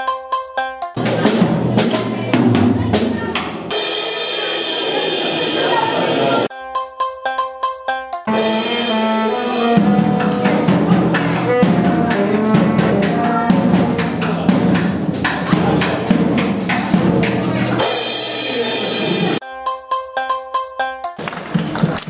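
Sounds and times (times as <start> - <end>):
drum and cymbal hits: 0.0 - 20.0
brass and saxophone: 8.3 - 14.4.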